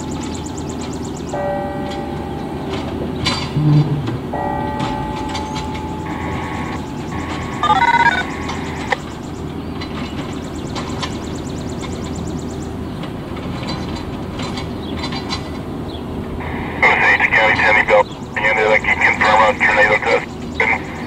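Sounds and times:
outdoor background noise: 0:00.0 - 0:21.0
electronic beep tones: 0:06.0 - 0:09.0.

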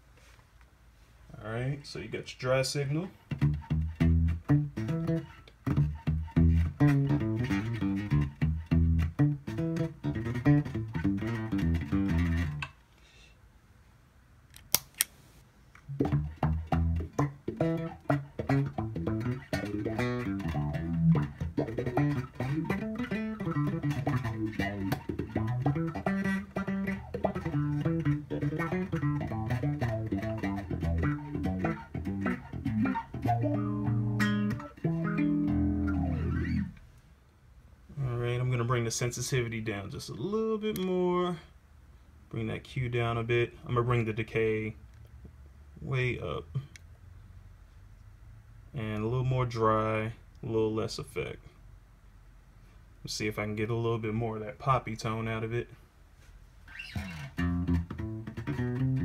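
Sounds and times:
electric bass playing: 0:02.8 - 0:12.7, 0:15.8 - 0:36.8, 0:56.8 - 0:59.0
bass through auto-wah filter: 0:03.1 - 0:12.6, 0:15.8 - 0:36.8, 0:56.7 - 0:59.0.

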